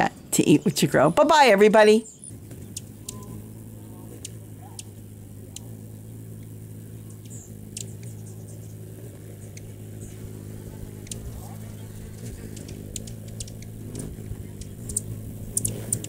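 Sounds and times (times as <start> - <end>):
hummingbird chip notes: 0.0 - 16.0
low motor hum: 0.0 - 16.0.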